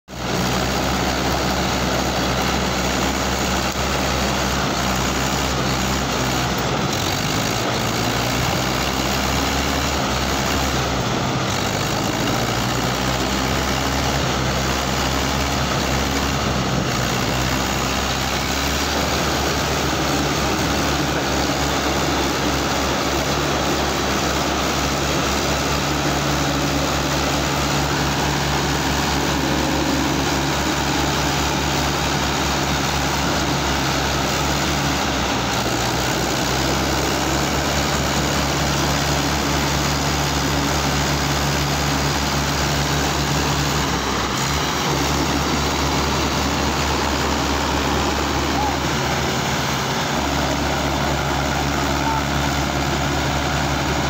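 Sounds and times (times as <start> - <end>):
tractor diesel engines under load: 0.0 - 54.0.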